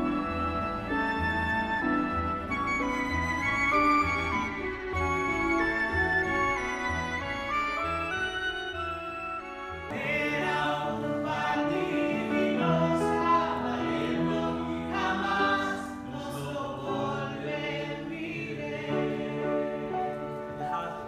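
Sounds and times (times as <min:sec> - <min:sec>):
voices singing in harmony: 0:09.9 - 0:21.0.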